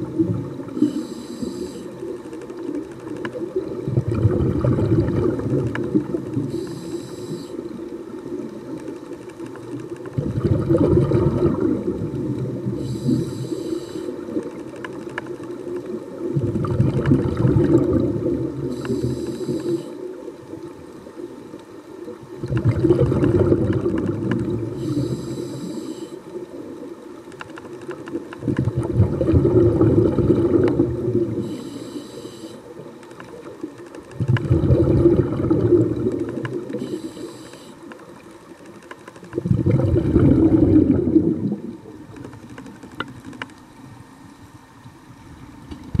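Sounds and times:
underwater exhaled air rumbling: 0.0 - 2.2, 3.3 - 8.7, 10.1 - 14.6, 15.8 - 20.8, 22.0 - 26.9, 28.4 - 32.9, 34.2 - 37.7, 39.2 - 42.2
short hiss: 36.7 - 38.0.

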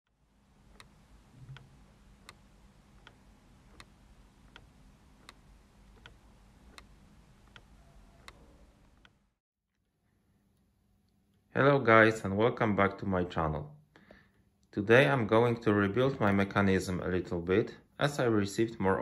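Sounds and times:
low steady hum: 0.1 - 9.4
clock ticking: 0.6 - 9.2.

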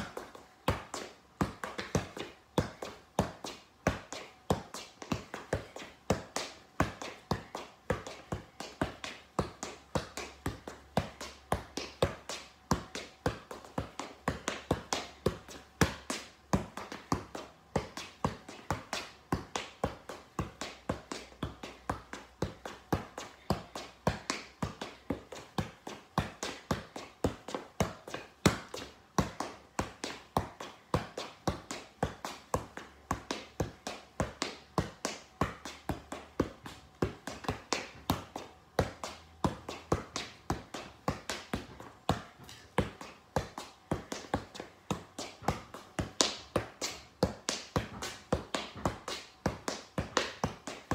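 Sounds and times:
soccer ball thumps: 0.0 - 50.9.

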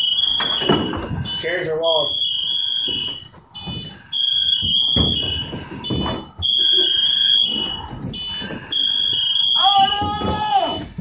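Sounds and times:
knocks and rustling of movement: 0.0 - 11.0
shrill electronic alarm tone: 0.0 - 11.0.

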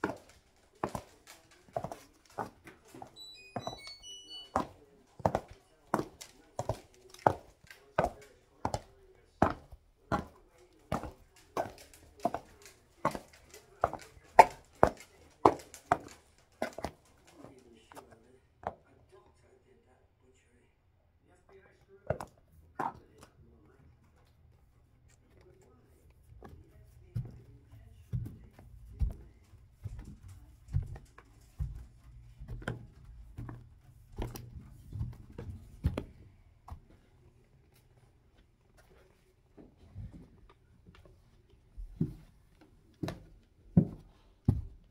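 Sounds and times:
heels clicking on hard floor: 0.0 - 18.1, 26.4 - 37.0, 41.8 - 44.9.

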